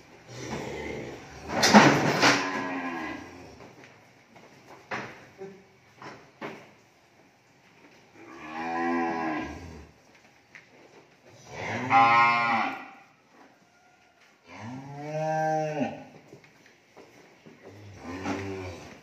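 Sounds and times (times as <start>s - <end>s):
young cattle mooing: 8.3s - 9.9s, 11.5s - 13.1s, 14.5s - 16.1s.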